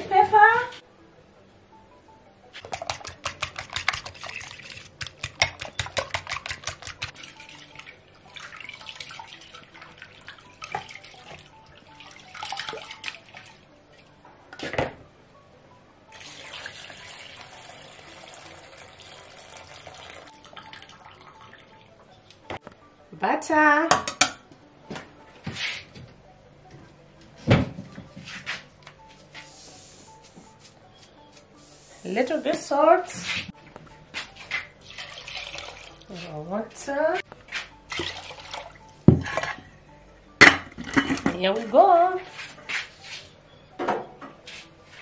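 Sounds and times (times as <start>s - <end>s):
water splashing in a steel pot: 2.8s - 13.6s, 16.2s - 21.6s, 34.8s - 36.4s, 37.9s - 39.4s.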